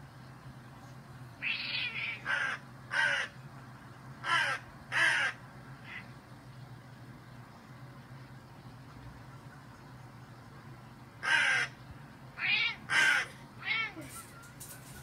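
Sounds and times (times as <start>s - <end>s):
crow cawing: 1.4s - 3.4s, 4.2s - 6.1s, 11.2s - 11.8s, 12.4s - 14.2s.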